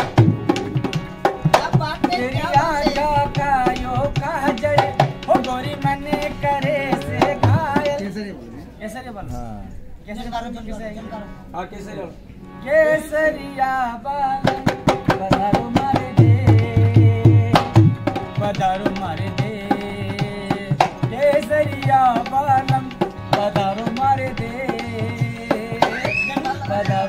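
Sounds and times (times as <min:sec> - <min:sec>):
hand drum quick rhythm: 0:00.0 - 0:08.0, 0:14.4 - 0:27.0
person singing folk song: 0:01.6 - 0:08.1, 0:12.6 - 0:27.0.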